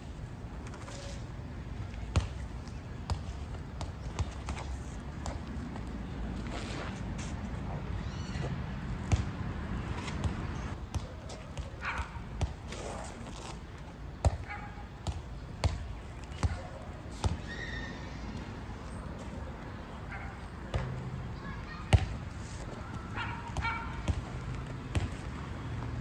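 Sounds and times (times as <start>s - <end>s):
hands and sneakers slapping asphalt: 1.8s - 17.6s.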